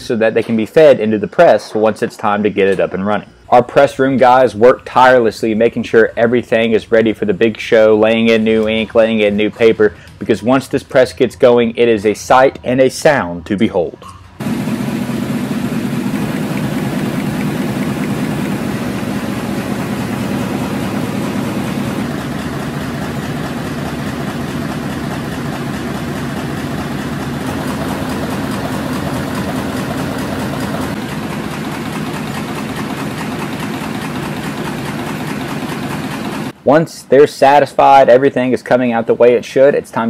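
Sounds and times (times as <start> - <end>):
printing press running: 14.4 - 36.6.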